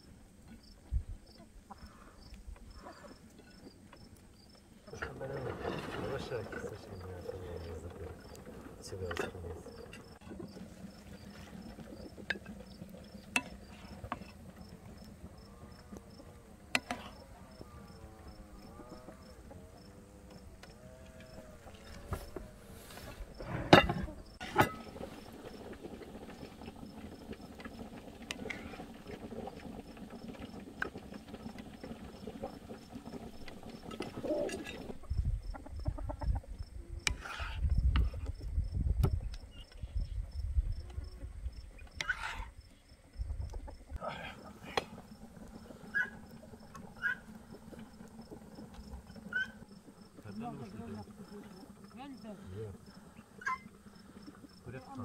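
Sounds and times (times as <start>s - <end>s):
wooden spoon scraping plates: 7.6s - 14.6s, 16.7s - 17.2s, 20.8s - 25.2s, 37.1s - 38.2s, 42.0s - 42.6s
chickens clucking: 34.0s - 36.8s, 40.9s - 50.0s.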